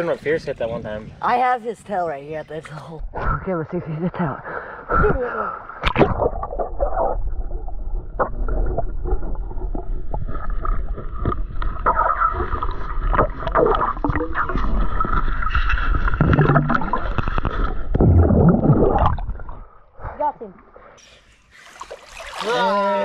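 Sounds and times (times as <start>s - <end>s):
water sloshing and splashing: 5.7s - 23.0s.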